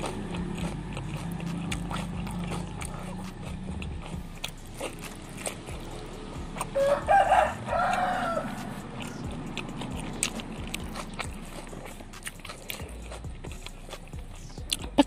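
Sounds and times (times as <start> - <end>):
chewing sounds: 0.0 - 15.0
rooster crowing: 6.6 - 9.4.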